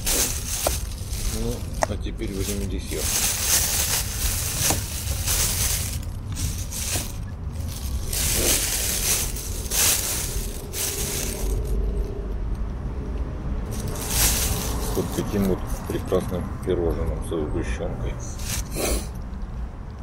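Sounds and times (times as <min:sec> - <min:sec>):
plastic bag crinkling: 0:00.0 - 0:11.8, 0:13.7 - 0:16.2, 0:18.4 - 0:19.1
steady low rumble: 0:00.0 - 0:17.3.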